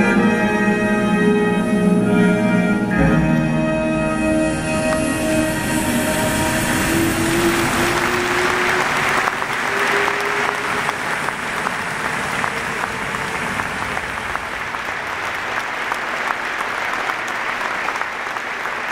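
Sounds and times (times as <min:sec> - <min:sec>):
held music notes: 0:00.0 - 0:14.6
audience applauding: 0:04.9 - 0:18.9.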